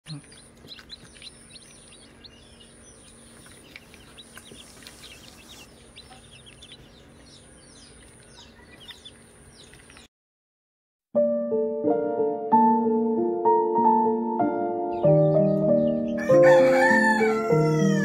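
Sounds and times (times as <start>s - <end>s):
chicks peeping: 0.1s - 10.1s, 14.9s - 18.0s.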